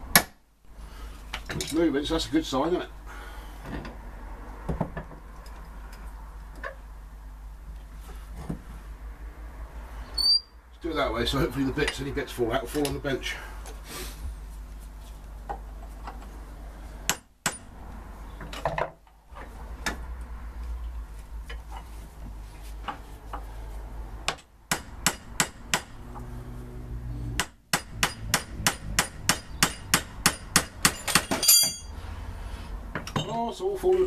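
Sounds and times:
hammer striking steel punch: 24.3 - 25.9, 27.4 - 31.9.

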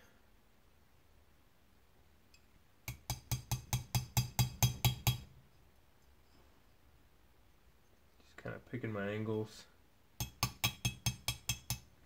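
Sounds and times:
hammer tapping steel punch: 2.9 - 5.3, 10.2 - 11.9.

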